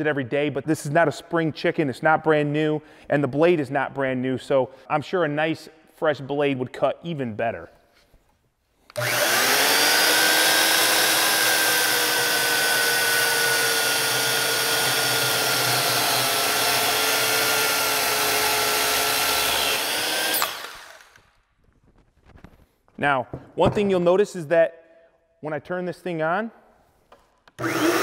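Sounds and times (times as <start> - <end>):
electric saw cutting wood: 8.9 - 21.2, 27.6 - 28.0.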